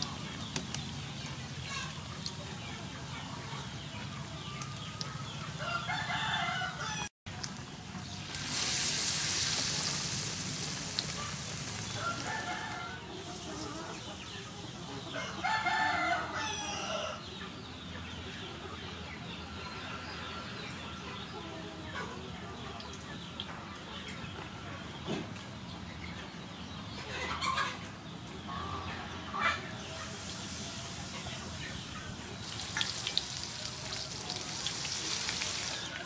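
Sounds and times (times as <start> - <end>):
deep-frying sizzle: 0.0 - 6.5, 7.3 - 14.4, 29.8 - 36.0
rooster crowing: 5.6 - 7.1, 11.9 - 13.1, 15.2 - 17.2.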